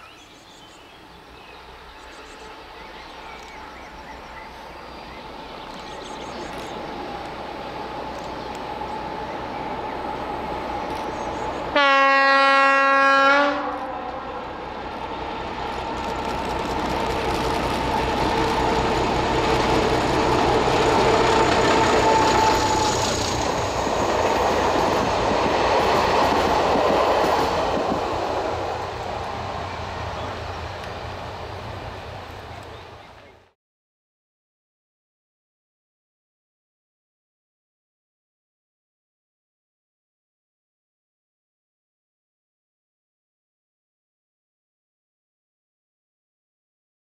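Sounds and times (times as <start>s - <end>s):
train coaches rumbling past: 0.0s - 33.6s
diesel locomotive engine passing: 0.4s - 33.6s
locomotive horn blast: 11.7s - 14.6s, 20.5s - 23.2s.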